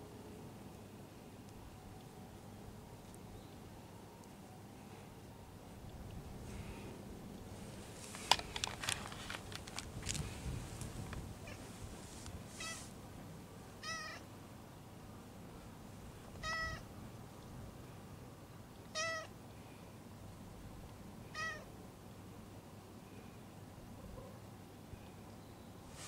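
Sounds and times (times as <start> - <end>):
cat meowing quietly: 12.5 - 12.9, 13.8 - 14.2, 16.4 - 16.9, 18.9 - 19.3, 21.3 - 21.7.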